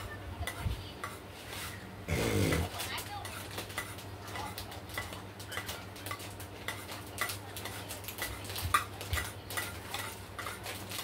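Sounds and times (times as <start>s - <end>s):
cutlery clinking against dish: 2.5s - 11.0s.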